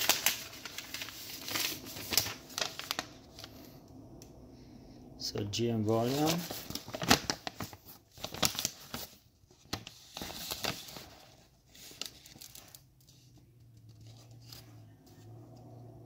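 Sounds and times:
paper rustling and crinkling: 0.0s - 3.6s, 5.9s - 15.3s
faint low hum: 0.1s - 7.6s.

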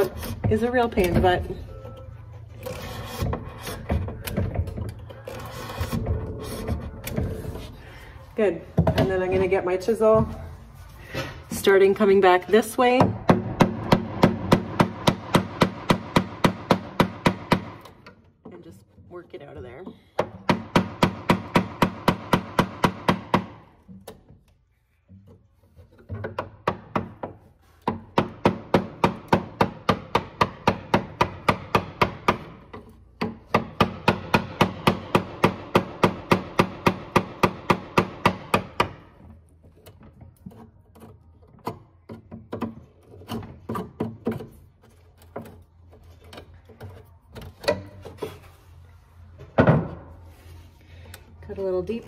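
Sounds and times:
chisel scraping and tapping wood: 37.4s - 48.5s.

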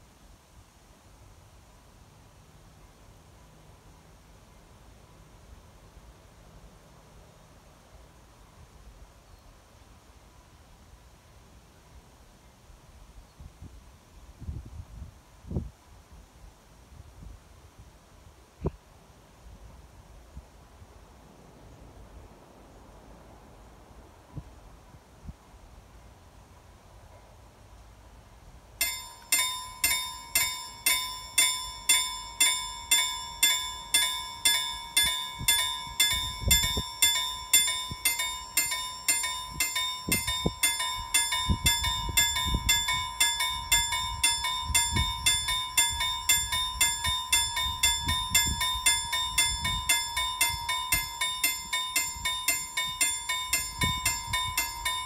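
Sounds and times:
level crossing warning bell: 28.8s - 55.0s.

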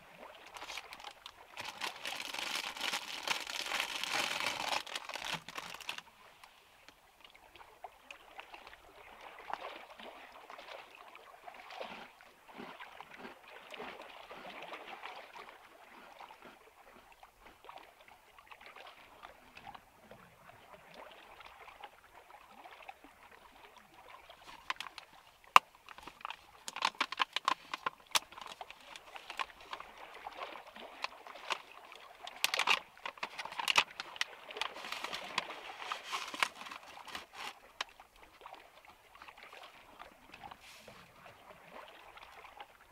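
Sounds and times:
soft water sounds: 0.0s - 42.9s
foil bag crinkling and tearing: 0.5s - 6.0s, 26.0s - 29.5s, 32.4s - 37.6s.

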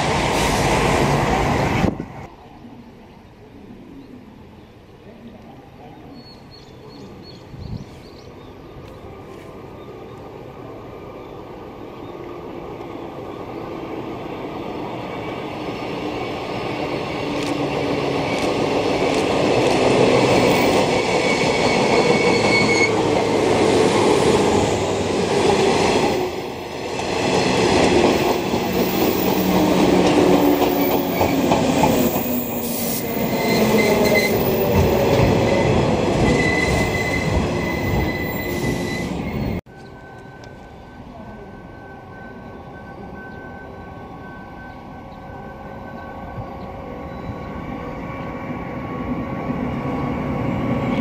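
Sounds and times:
electric train passing: 8.6s - 51.0s.

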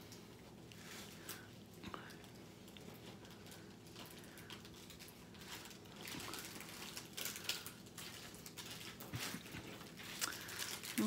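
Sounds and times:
canvas and plastic film rustling: 2.2s - 11.0s.

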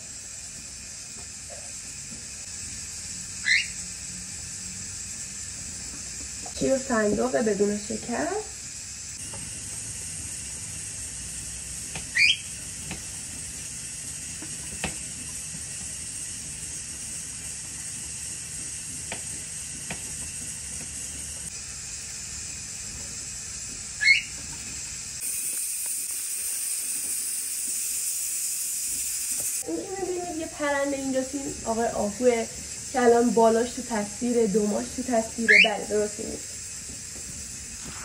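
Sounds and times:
steady hiss: 0.0s - 38.0s
pet bird chirping: 3.4s - 3.8s, 12.1s - 12.5s, 24.0s - 24.4s, 35.4s - 35.9s.

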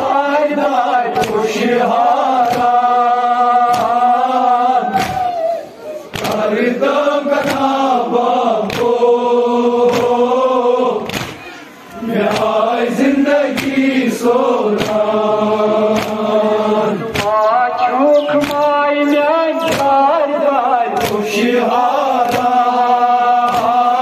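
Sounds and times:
crowd of men chanting: 0.0s - 24.0s
hands slapping chests: 1.2s - 2.9s, 3.6s - 4.1s, 4.9s - 5.4s, 6.1s - 6.6s, 8.6s - 9.0s, 11.0s - 11.5s, 12.2s - 12.6s, 13.4s - 13.9s, 14.7s - 15.1s, 15.8s - 16.4s, 17.1s - 17.5s, 18.2s - 18.8s, 19.6s - 20.1s, 21.0s - 21.3s, 22.1s - 22.6s, 23.3s - 24.0s.

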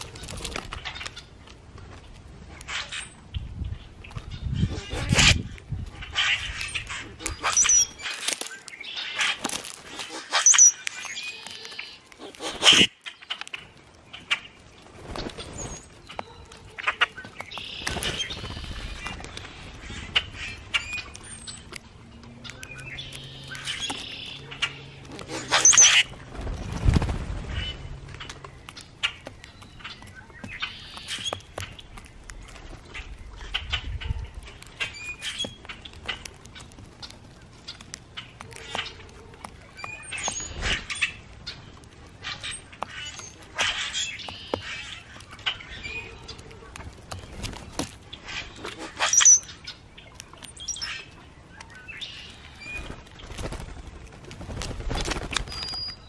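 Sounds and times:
birds harsh chack calls: 4.4s - 55.9s
birds squeaky high whistles: 6.3s - 9.2s, 10.2s - 12.0s, 25.5s - 26.1s, 49.0s - 49.8s, 55.2s - 56.0s.

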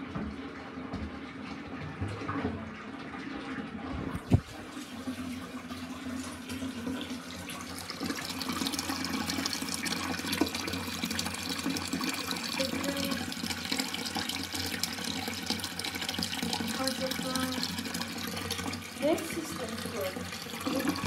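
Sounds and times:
water running into toilet cistern: 0.0s - 21.0s.

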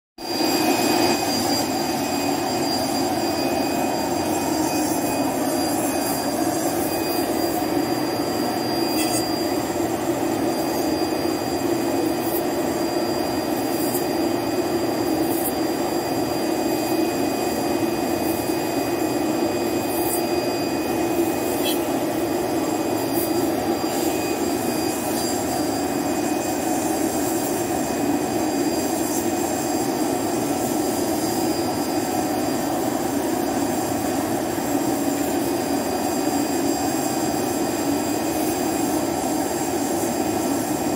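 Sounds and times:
cutting machine whirring roar: 0.2s - 40.9s.

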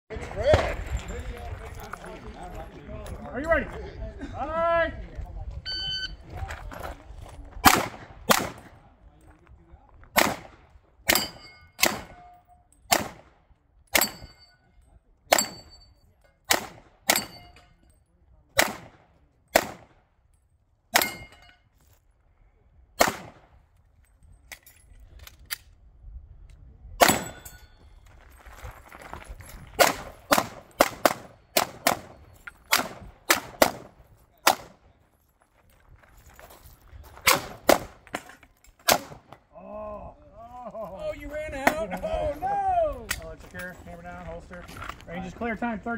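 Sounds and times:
pistol shots: 7.6s - 8.7s, 10.1s - 12.3s, 12.9s - 13.4s, 16.5s - 17.5s, 18.6s - 20.0s, 23.0s - 23.5s, 27.0s - 27.5s, 29.8s - 34.8s, 37.2s - 38.0s, 38.8s - 39.4s
steel target ringing: 11.1s - 12.6s, 21.0s - 21.6s.

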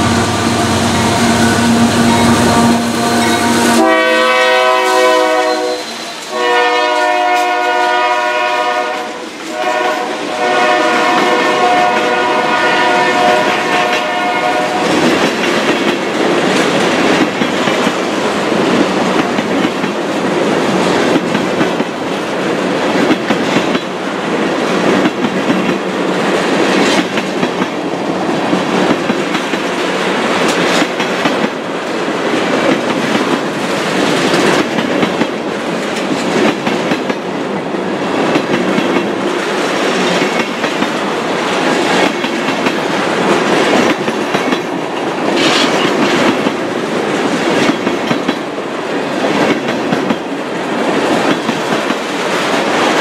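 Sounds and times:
locomotive rumble: 0.0s - 6.2s
train horn blasts: 0.0s - 15.1s
train wheels clickety-clack: 3.2s - 53.0s.

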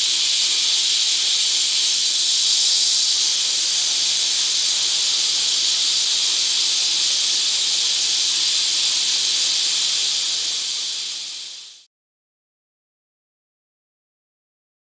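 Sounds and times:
spray nozzle hissing: 0.0s - 11.9s.

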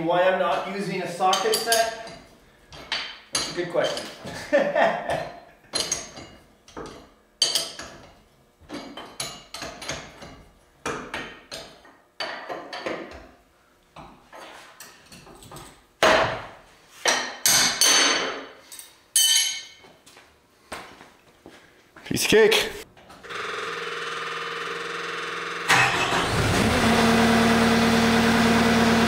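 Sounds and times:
wrenches clinking against steel bolts: 1.3s - 2.3s, 3.0s - 4.2s, 5.7s - 10.4s, 17.4s - 19.8s.

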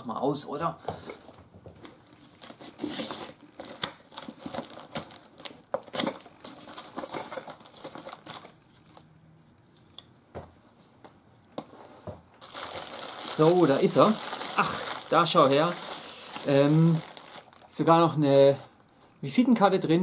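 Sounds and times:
plastic wrapping crinkling: 1.3s - 9.1s, 12.4s - 19.0s
packing tape tearing: 2.2s - 8.5s, 12.4s - 17.7s.

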